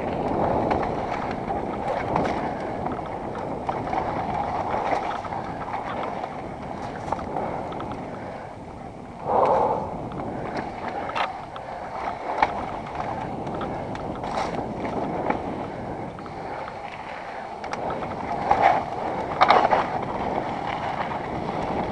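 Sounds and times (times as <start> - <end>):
wind rushing on microphone: 0.0 - 21.9
bike knocking and rattling: 12.2 - 16.8.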